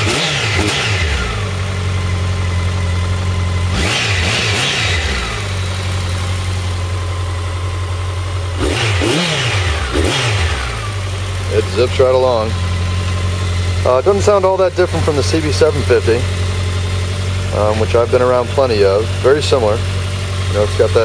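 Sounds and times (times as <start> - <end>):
motorcycle engine idling and revving: 0.0 - 21.0.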